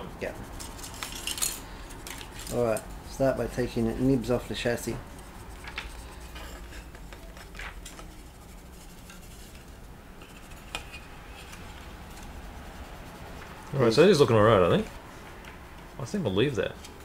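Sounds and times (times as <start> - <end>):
sanding sponge rubbing plastic: 0.1 - 1.2, 2.0 - 14.9.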